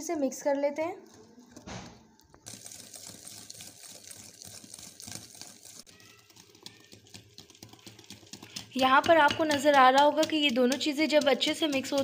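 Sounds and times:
whisk clicking against glass bowl: 2.4 - 12.0.

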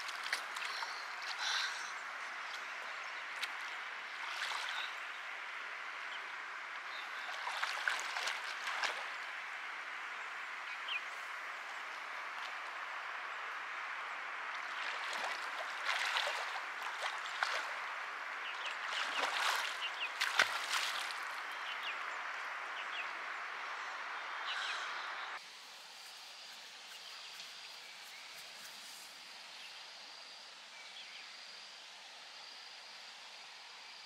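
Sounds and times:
water running and splashing: 6.9 - 9.4, 14.4 - 21.6.

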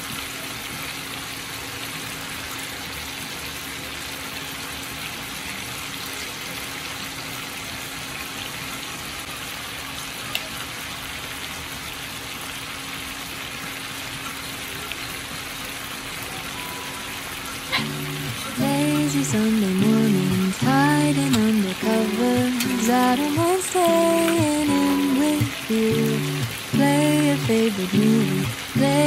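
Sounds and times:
chicken sizzling in oil: 14.0 - 29.0.

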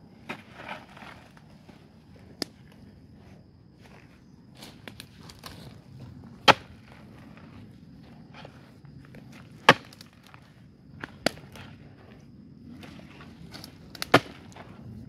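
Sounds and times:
knocks and scrapes of earth: 0.1 - 15.0
digging tool striking earth: 6.4 - 7.0, 9.6 - 10.4, 13.5 - 14.7.

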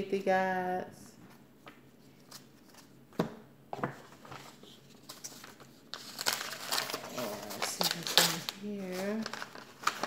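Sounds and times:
paper cards rustling: 3.8 - 10.0.

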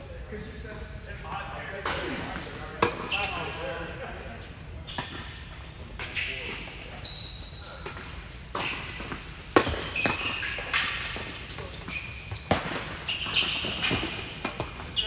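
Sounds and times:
short high squeaks: 6.1 - 7.9, 9.7 - 14.2
tennis balls bouncing on court: 7.8 - 15.0
tennis balls struck by rackets: 7.9 - 15.0.

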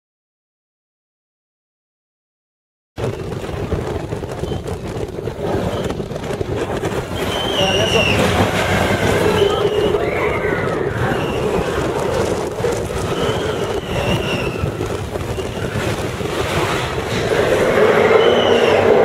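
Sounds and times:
roller coaster rumbling on track: 3.0 - 19.0
rushing air: 3.0 - 19.0
high wheel squeals: 7.1 - 11.8, 12.9 - 15.8, 16.6 - 19.0.

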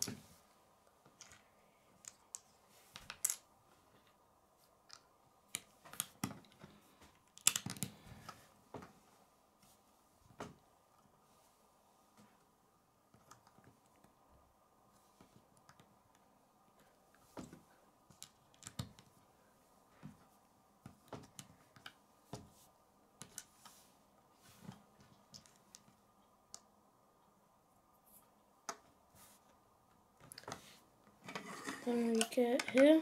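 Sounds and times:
plastic bricks clicking together: 7.3 - 8.0.

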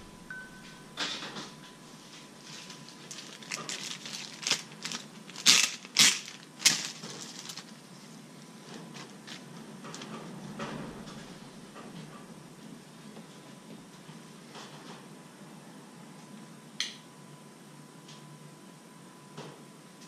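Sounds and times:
plastic bag crinkling: 2.4 - 7.8
plastic bag ripping: 2.4 - 7.8.

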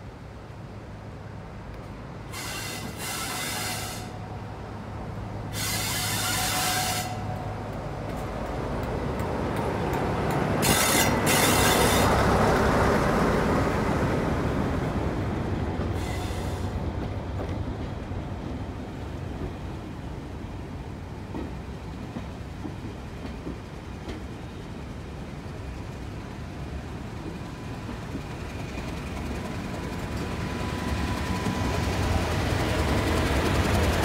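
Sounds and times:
diesel locomotive engine hum: 0.0 - 34.0
train coaches rumbling: 0.0 - 34.0.

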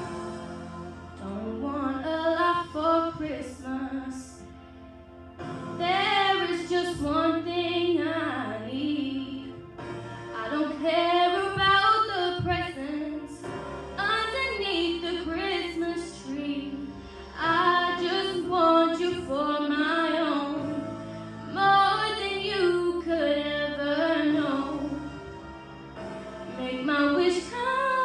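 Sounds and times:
instrumental backing low notes: 0.0 - 28.0
girl singing into a microphone: 1.2 - 4.4, 5.8 - 9.5, 10.4 - 13.4, 14.0 - 20.8, 21.5 - 24.9, 26.6 - 28.0.

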